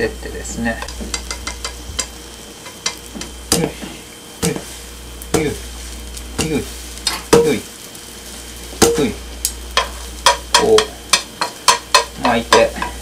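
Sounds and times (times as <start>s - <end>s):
frying pan handle knocks: 9.8s - 12.9s.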